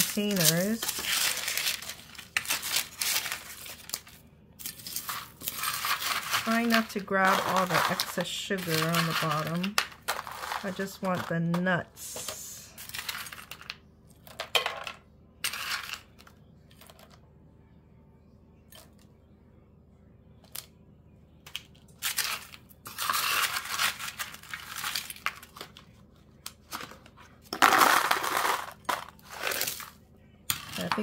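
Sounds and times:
pecans clattering into container: 0:00.0 - 0:16.1, 0:27.5 - 0:31.0.

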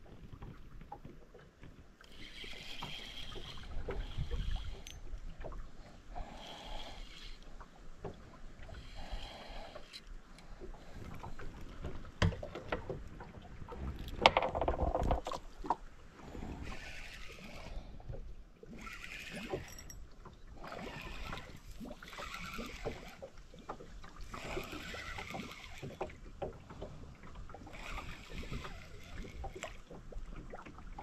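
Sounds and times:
fishing tackle knocks and clicks: 0:11.8 - 0:13.2, 0:13.9 - 0:15.8.

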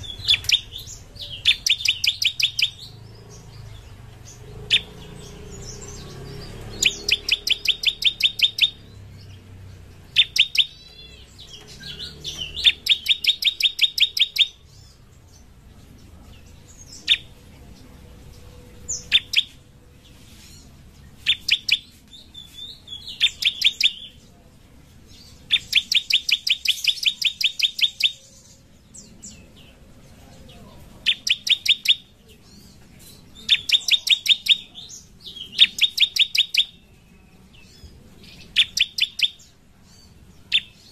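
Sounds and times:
bird twittering: 0:00.0 - 0:15.0, 0:16.8 - 0:17.4, 0:18.7 - 0:19.6, 0:21.2 - 0:24.2, 0:25.2 - 0:29.4, 0:31.0 - 0:40.9
bird singing sharp chip notes: 0:00.0 - 0:15.5, 0:18.2 - 0:24.2, 0:31.0 - 0:40.9.

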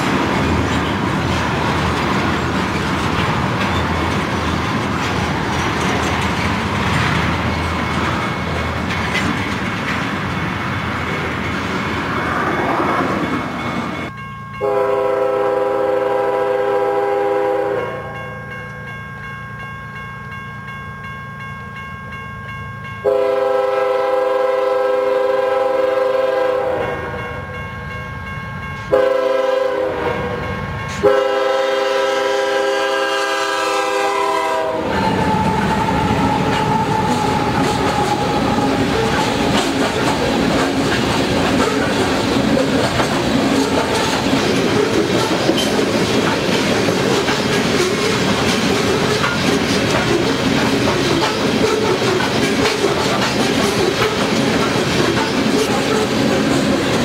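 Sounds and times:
freight train rumbling past: 0:00.0 - 0:57.0
locomotive air horn blasts: 0:14.6 - 0:18.2, 0:23.0 - 0:27.4, 0:28.9 - 0:39.5.

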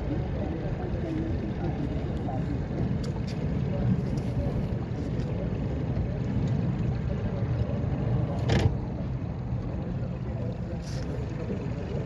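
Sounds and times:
boat engine rumble: 0:00.0 - 0:12.0
wind on water: 0:00.0 - 0:12.0.

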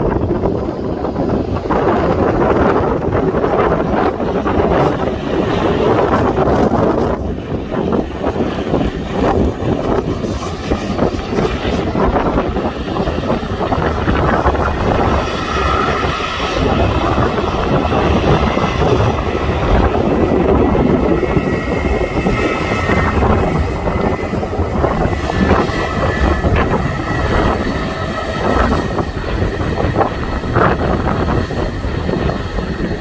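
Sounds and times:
jet engines running: 0:00.0 - 0:33.0
wind on microphone: 0:00.0 - 0:33.0.

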